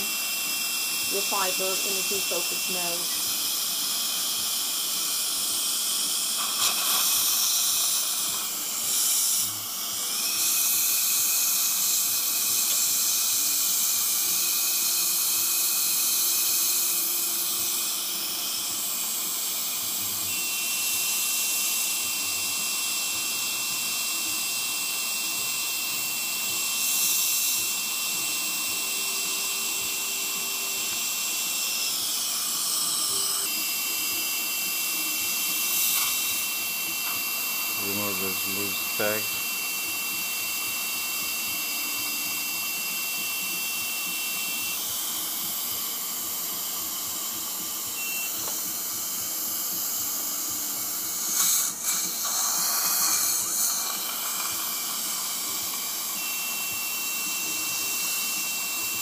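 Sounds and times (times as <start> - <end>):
dental suction hissing: 0.0 - 59.0
high-pitched beep: 48.0 - 48.5.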